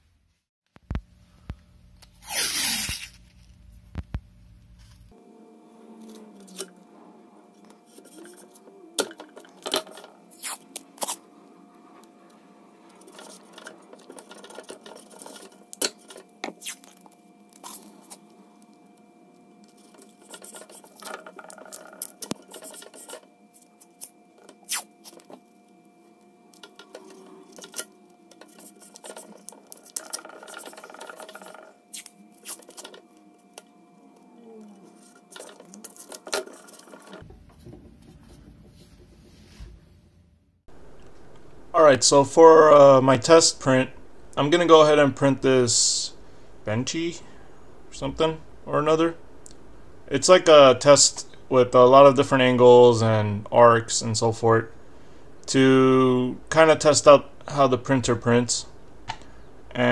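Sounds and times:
tape peeling and rubbing: 0:02.0 - 0:03.6, 0:10.3 - 0:11.3, 0:12.8 - 0:18.3, 0:19.6 - 0:25.4, 0:26.9 - 0:33.0.

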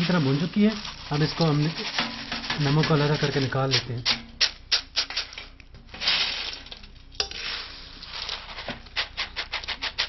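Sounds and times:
peanuts rattling in a strainer: 0:00.0 - 0:10.0.

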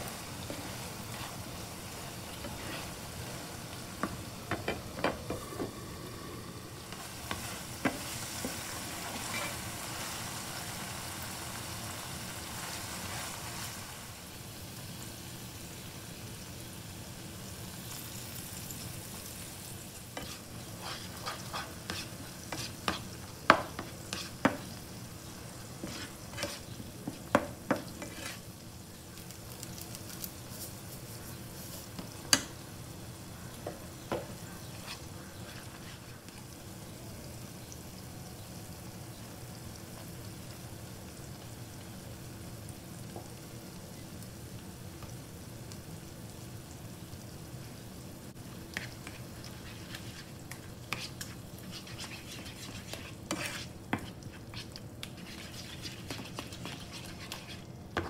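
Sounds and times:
liver sizzling in a frying pan: 0:00.0 - 0:58.0
utensils scraping a pan: 0:02.2 - 0:03.0, 0:07.2 - 0:09.6, 0:20.2 - 0:24.7, 0:25.8 - 0:28.4, 0:34.7 - 0:36.2, 0:48.7 - 0:57.7.

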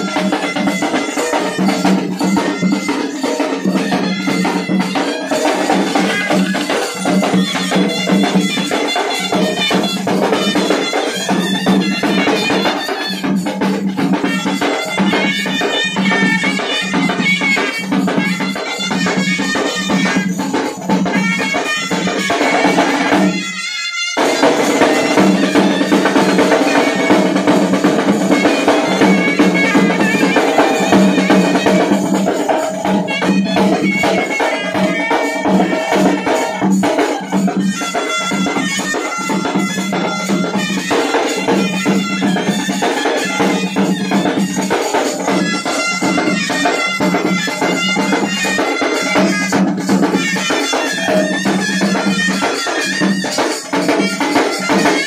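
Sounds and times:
metal hand cymbals: 0:00.0 - 0:55.0
reedy wind instrument melody: 0:00.0 - 0:55.0
snare drum: 0:00.0 - 0:55.0.

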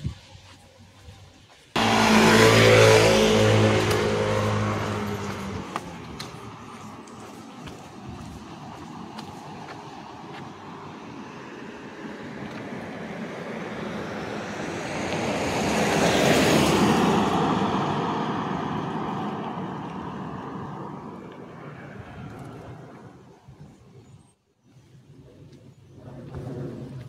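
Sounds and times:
vehicle passing by: 0:01.7 - 0:23.3.

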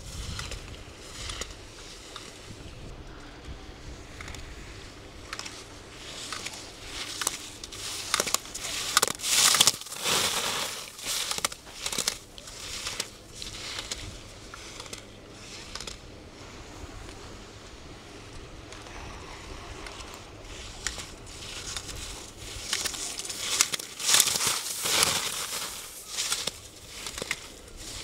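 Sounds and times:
wind rumble on microphone: 0:00.0 - 0:08.9, 0:12.4 - 0:23.4
ski edges scraping on snow: 0:04.4 - 0:16.0, 0:19.2 - 0:28.0.

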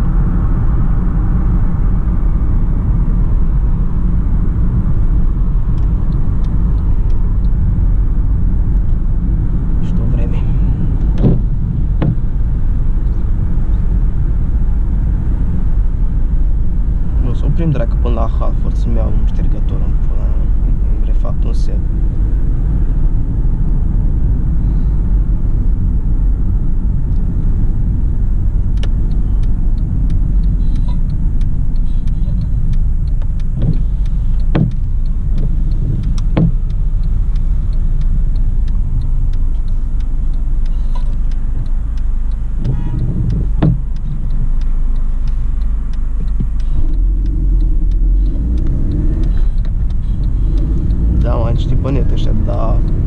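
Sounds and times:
engine and road noise in car: 0:00.0 - 0:53.0
short knocks: 0:11.1 - 0:12.2, 0:34.5 - 0:34.8, 0:36.3 - 0:36.6, 0:42.6 - 0:43.9.

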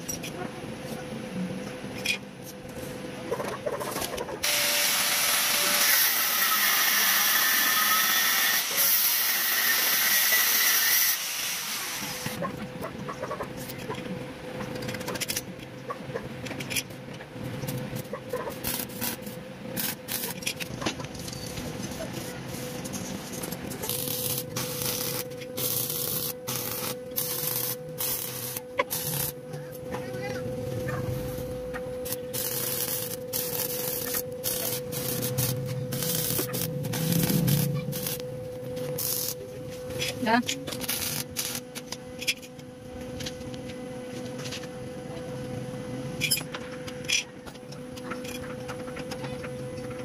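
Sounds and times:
steady hum: 0:00.0 - 0:50.0
arc welding hiss: 0:04.4 - 0:12.4, 0:18.5 - 0:20.4, 0:23.7 - 0:29.4, 0:32.0 - 0:38.3, 0:38.9 - 0:39.4, 0:40.8 - 0:41.6.

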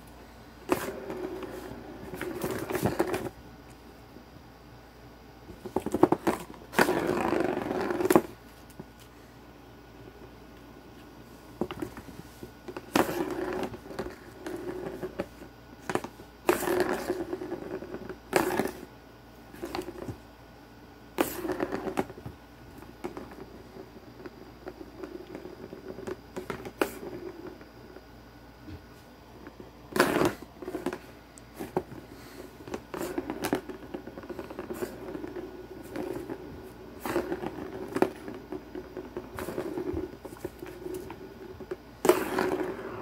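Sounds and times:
plastic ball rolling on plastic track: 0:00.7 - 0:03.3, 0:05.7 - 0:08.4, 0:12.6 - 0:18.9, 0:21.2 - 0:22.2, 0:23.0 - 0:28.0, 0:32.6 - 0:43.0.

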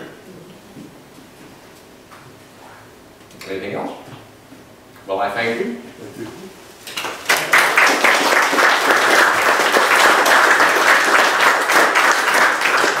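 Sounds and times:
audience applauding: 0:06.9 - 0:13.0.

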